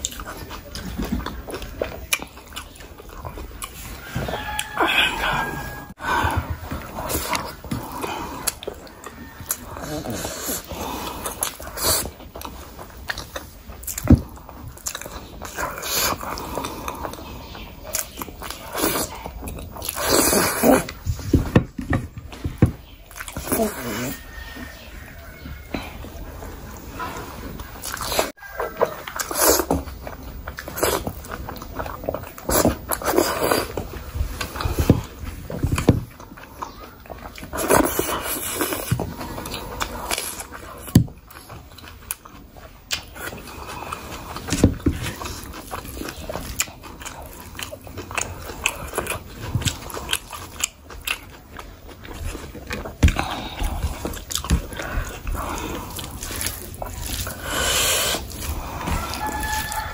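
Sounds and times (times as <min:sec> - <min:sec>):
biting and wet chewing: 0:00.0 - 0:59.9
hand squishing rice: 0:53.2 - 0:59.9.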